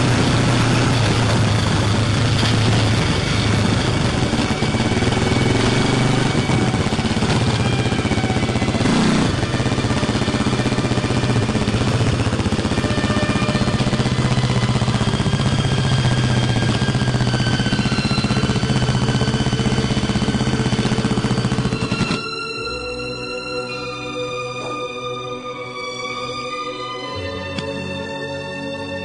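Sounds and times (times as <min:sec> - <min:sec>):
motorcycle engine at low revs: 0:00.0 - 0:22.2.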